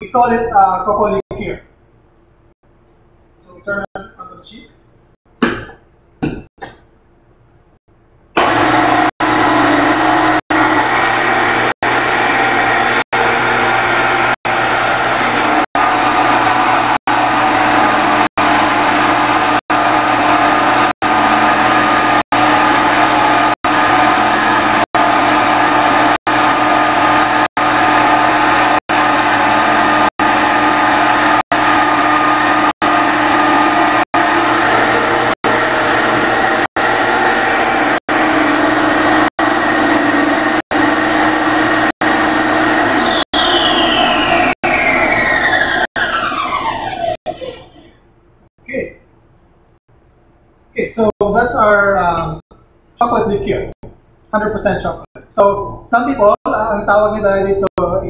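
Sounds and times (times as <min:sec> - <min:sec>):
grinding mill whining: 0:08.4 - 0:48.2.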